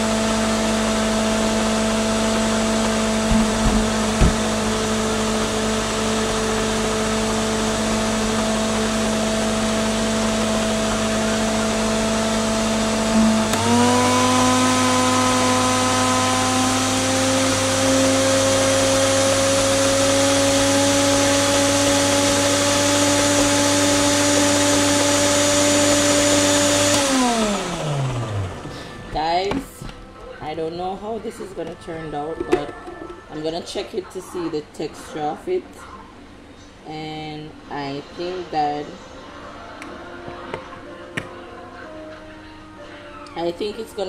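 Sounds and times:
blender motor running: 0.0s - 29.0s.

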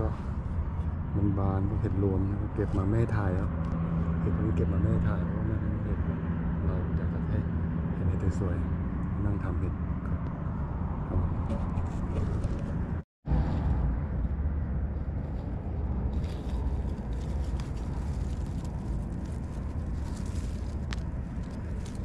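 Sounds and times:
leaves rustling and crackling: 14.9s - 22.0s.

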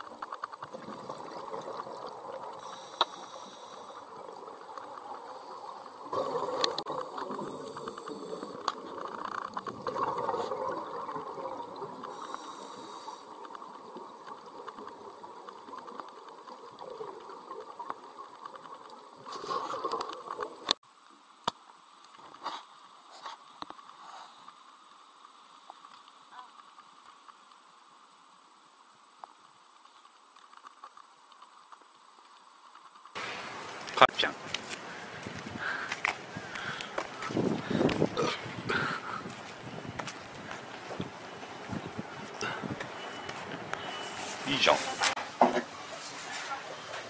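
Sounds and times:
exhaled bubbles burbling: 0.0s - 20.8s, 36.4s - 42.9s
regulator hiss: 2.3s - 9.3s, 11.8s - 14.6s.

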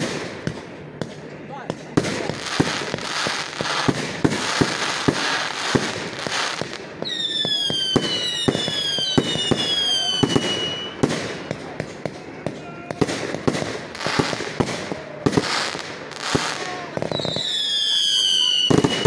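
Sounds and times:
firework bangs: 0.0s - 19.0s
falling whistles of shells: 7.0s - 11.0s, 17.1s - 19.0s.

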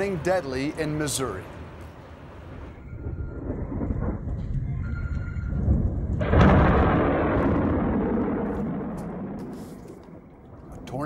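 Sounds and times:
thunder rumbling and cracking: 2.5s - 11.0s.

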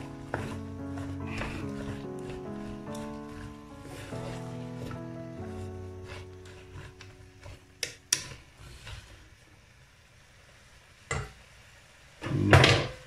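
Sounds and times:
background music: 0.0s - 8.2s
wooden spoon stirring in pot: 0.0s - 9.5s.

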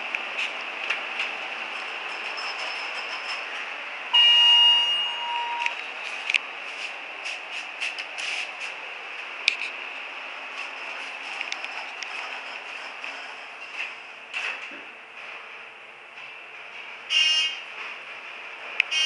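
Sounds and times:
elevator chime: 1.8s - 5.9s.

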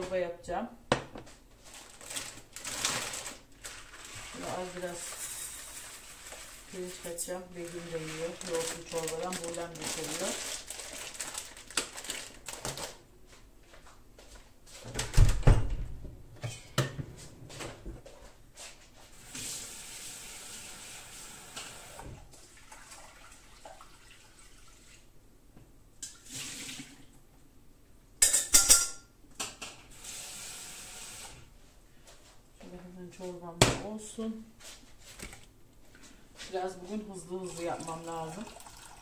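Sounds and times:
pots and utensils clattering: 28.2s - 29.8s.

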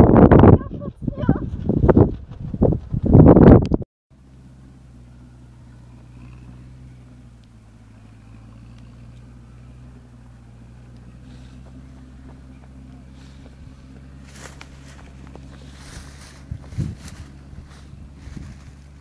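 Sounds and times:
steady low hum: 4.2s - 19.0s.

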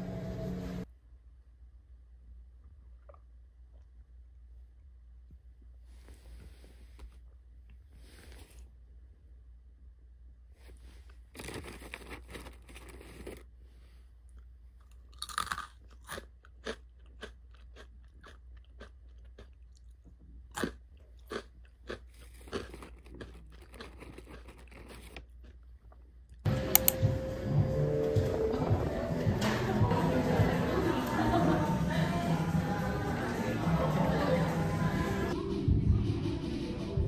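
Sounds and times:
person chewing crunchy food: 11.3s - 13.6s, 14.2s - 26.5s.

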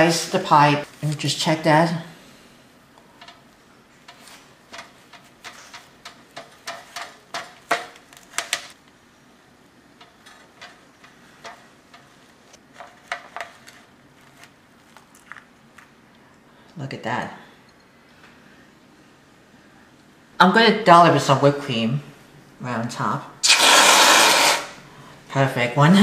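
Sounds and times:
knife clicking and scraping foil pan: 4.1s - 8.8s.

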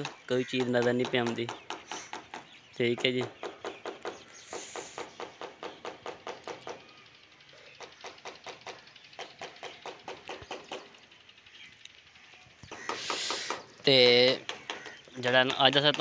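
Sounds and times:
fast even tapping: 0.0s - 6.8s, 12.7s - 16.0s.

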